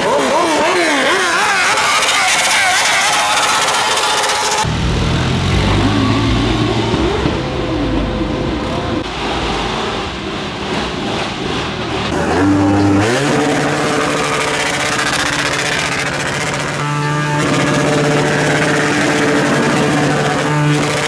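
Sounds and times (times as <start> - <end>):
quad bike engine revving: 0.0 - 10.0, 10.7 - 21.0
motorcycle engine revving: 0.0 - 21.0.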